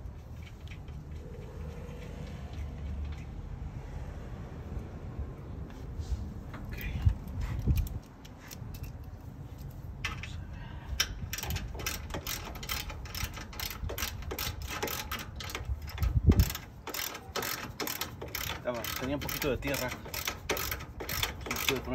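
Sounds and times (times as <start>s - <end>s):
ratchet wrench clicking: 11.0s - 21.9s.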